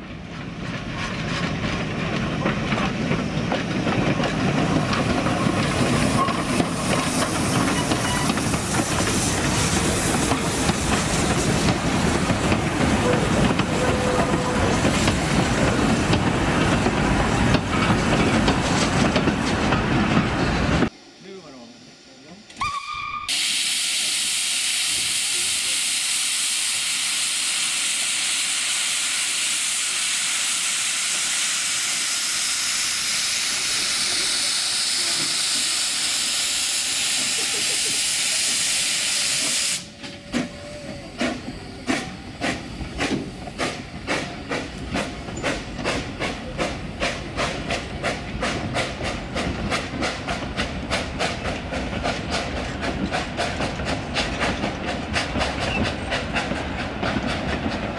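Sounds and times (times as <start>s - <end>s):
train clattering over rails: 0.0s - 21.0s, 32.8s - 57.9s
steam locomotive hissing: 0.0s - 57.9s.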